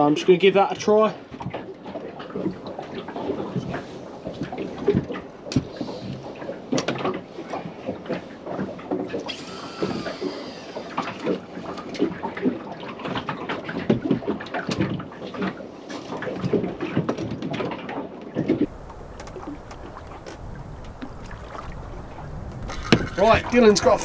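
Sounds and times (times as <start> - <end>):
water lapping against boat hull: 0.7 - 24.0
knocks and clatter: 22.4 - 23.6.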